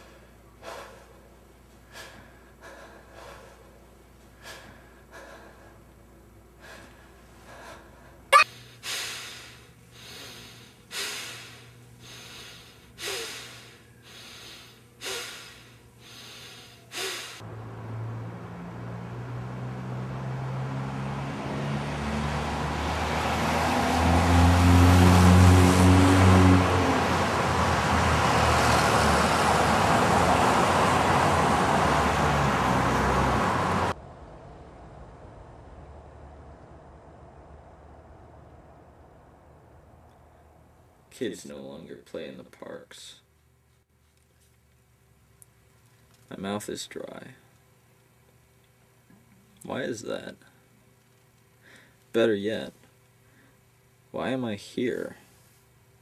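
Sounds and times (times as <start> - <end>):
vehicle engine hum: 9.8 - 41.4
road noise: 17.4 - 41.2.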